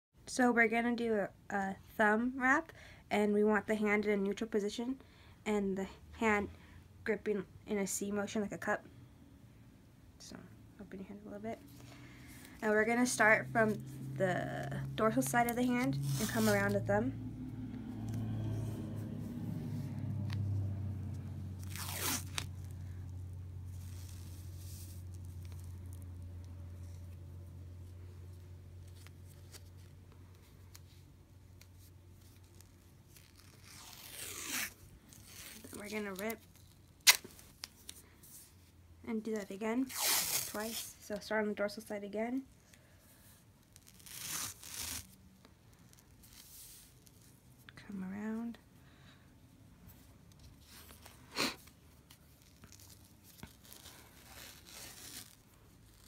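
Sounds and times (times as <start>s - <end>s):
low steady hum: 0.2s - 56.0s
tape peeling off roll: 15.2s - 27.2s, 27.9s - 38.0s, 43.6s - 47.4s, 50.3s - 56.0s
tape crinkling and ticking: 23.8s - 34.3s, 52.0s - 56.0s.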